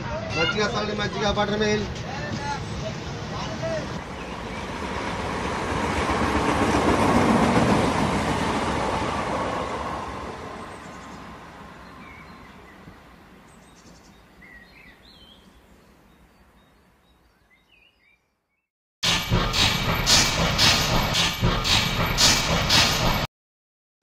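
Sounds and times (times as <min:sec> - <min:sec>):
passenger train running: 0:00.0 - 0:13.2, 0:19.0 - 0:23.3.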